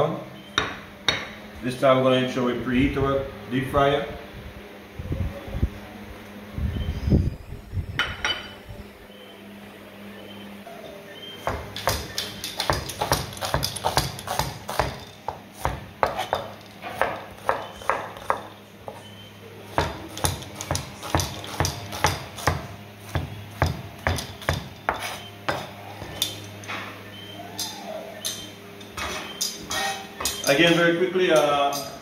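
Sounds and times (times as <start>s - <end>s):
knife chopping on plastic board: 11.5s - 18.5s, 19.7s - 26.2s.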